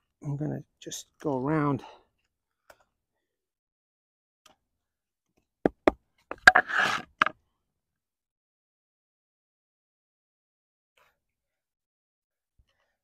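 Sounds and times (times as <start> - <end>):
knife scraping wood: 6.3 - 7.3.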